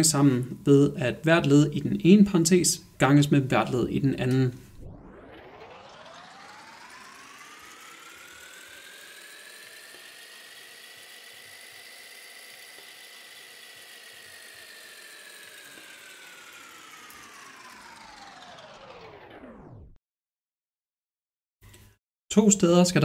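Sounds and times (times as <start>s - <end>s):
buzzy synthesized tone gliding: 3.4s - 19.8s.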